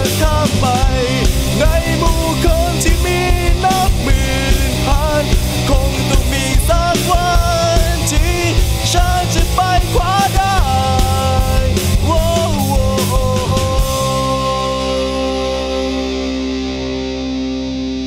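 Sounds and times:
distorted electric guitar lead: 0.0 - 18.0
rock band playing: 0.0 - 18.0
held guitar chord ringing: 13.4 - 18.0.

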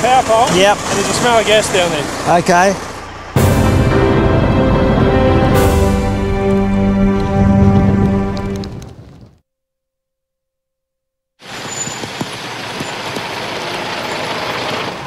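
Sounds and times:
tyres throwing spray on wet road: 0.0 - 5.1, 11.4 - 15.0
music: 3.4 - 8.7.

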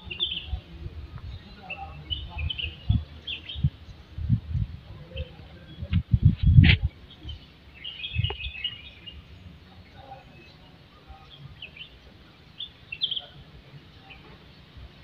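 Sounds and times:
small birds chirping: 0.0 - 15.0
low rumble on microphone: 0.3 - 7.4, 8.0 - 8.7.

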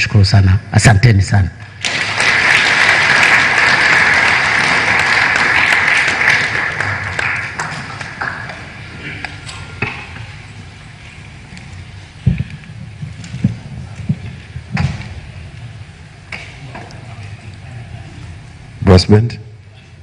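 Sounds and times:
audience applauding: 1.8 - 9.4.

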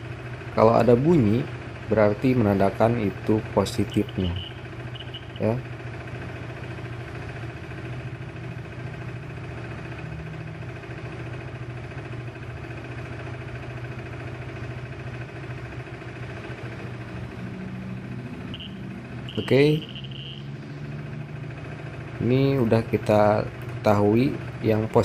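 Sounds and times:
motorcycle engine idling: 0.0 - 25.0
high-pitched buzzer beep: 3.9 - 5.5, 18.5 - 20.5.

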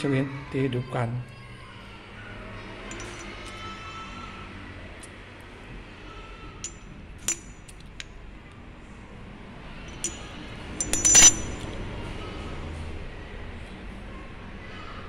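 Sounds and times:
metal rings clinking: 2.9 - 3.5, 6.6 - 8.1, 9.9 - 11.8.

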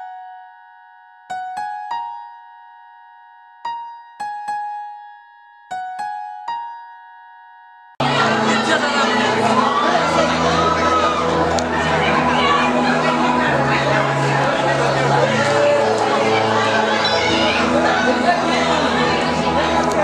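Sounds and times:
electric piano jingle: 0.0 - 9.3
live concert crowd and band: 8.0 - 20.0.

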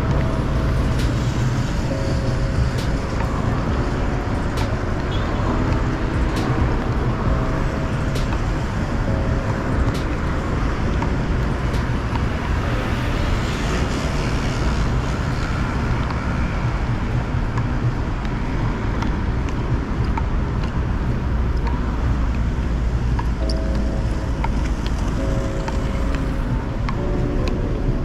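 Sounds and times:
road traffic rumble: 0.0 - 28.0.

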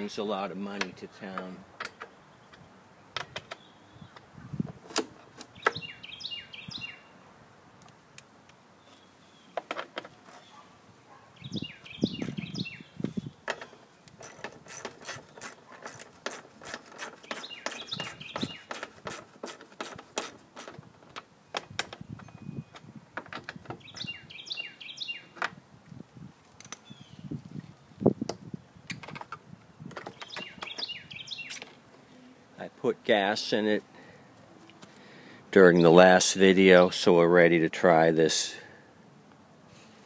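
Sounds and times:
bird chirping: 3.4 - 4.3, 5.5 - 7.2, 8.8 - 9.7, 10.4 - 14.1, 17.1 - 18.9, 23.7 - 25.4, 26.8 - 27.4, 29.8 - 31.8.

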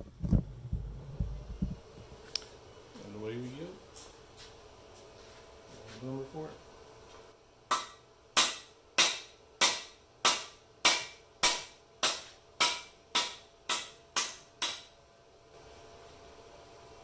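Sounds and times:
hammer striking metal tool: 7.7 - 15.0.

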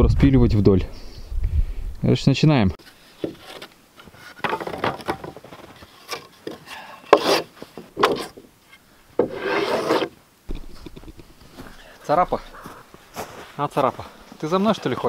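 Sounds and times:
wood scraping on wood: 2.8 - 13.5
sharp wooden knocks: 4.4 - 5.7.

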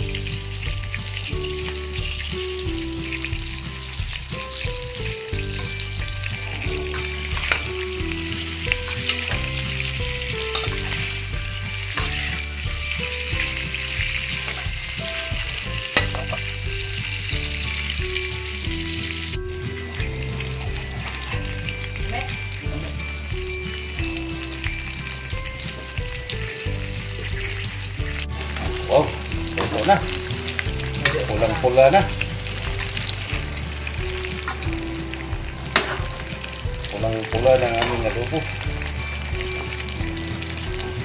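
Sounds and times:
pork sizzling in a pan: 0.0 - 41.0
spatula scraping and knocking pan: 6.7 - 16.9, 35.4 - 36.6.

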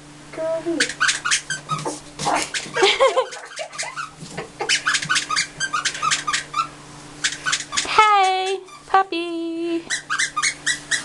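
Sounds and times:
puppy whine: 0.8 - 8.0, 9.9 - 11.0.

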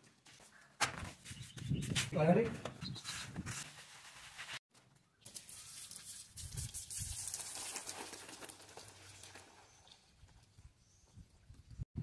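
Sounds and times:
hose spraying against brick wall: 5.3 - 10.0.

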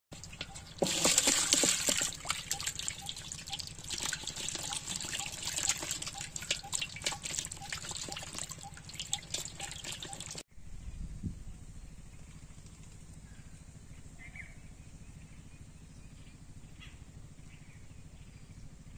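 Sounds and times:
fish flapping and splashing: 0.2 - 10.4
water poured into metal basin: 0.2 - 10.4.

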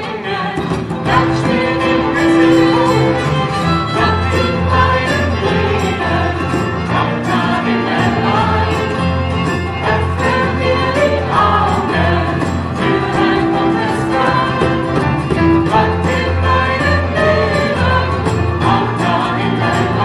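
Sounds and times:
acoustic guitars: 0.0 - 20.0
keyboard: 0.0 - 20.0
violin: 0.0 - 20.0
voices singing: 0.0 - 20.0
held bass notes: 1.0 - 20.0.

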